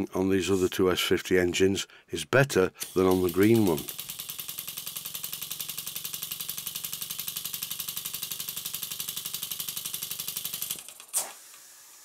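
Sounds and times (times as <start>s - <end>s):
steam engine exhaust puffing: 2.8s - 12.0s.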